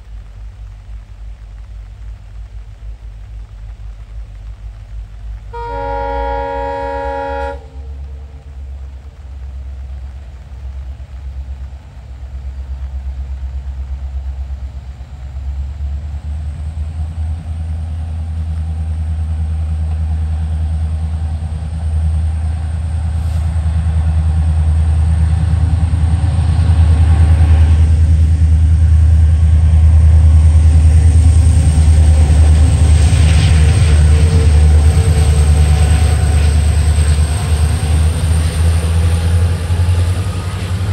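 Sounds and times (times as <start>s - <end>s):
diesel locomotive engine rumble: 0.0s - 40.9s
locomotive horn: 5.5s - 8.5s.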